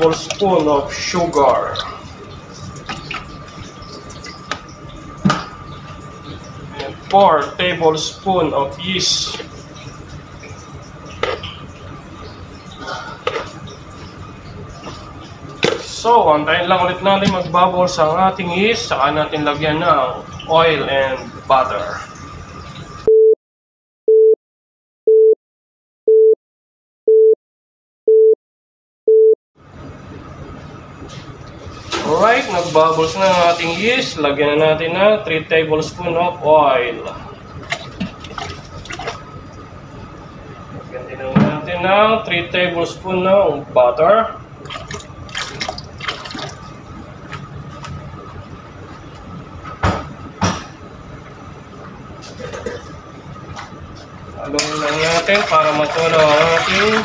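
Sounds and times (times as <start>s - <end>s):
faint liquid splashing: 37.6s - 39.7s, 44.6s - 47.4s, 54.5s - 57.0s.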